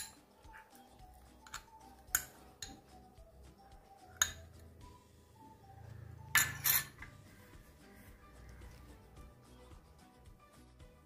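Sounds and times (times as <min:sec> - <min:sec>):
metal spoon clinking against glass: 0:00.0 - 0:00.2, 0:01.4 - 0:02.8, 0:04.1 - 0:04.6, 0:06.3 - 0:07.2
quiet background music: 0:00.0 - 0:11.0.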